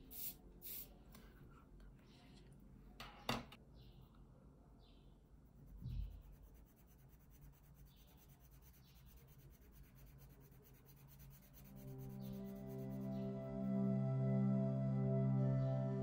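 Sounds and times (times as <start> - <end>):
marker scratching on paper: 5.6 - 13.2.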